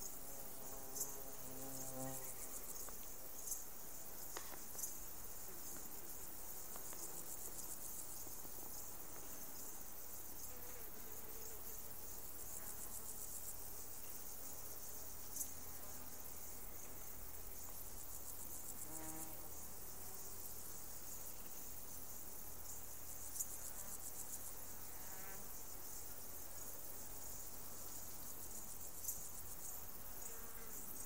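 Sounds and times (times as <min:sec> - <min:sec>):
insects chirping: 0:00.0 - 0:31.0.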